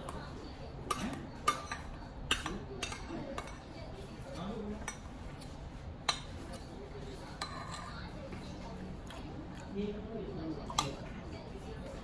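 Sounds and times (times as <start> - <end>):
metal spoon clinking on bowl: 0.9 - 3.7, 7.4 - 8.0.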